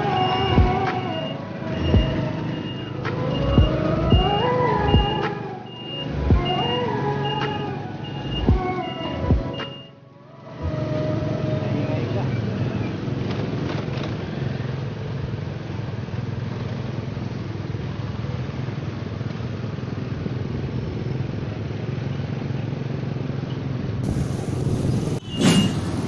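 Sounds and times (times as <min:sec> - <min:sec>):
motorcycle engine running: 0:00.0 - 0:02.6
wind rushing over microphone: 0:24.0 - 0:26.0.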